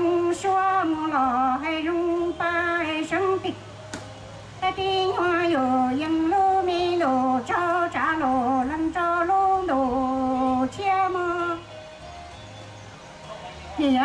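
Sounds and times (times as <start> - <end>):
woman singing through microphone: 0.0 - 3.6, 4.6 - 11.7.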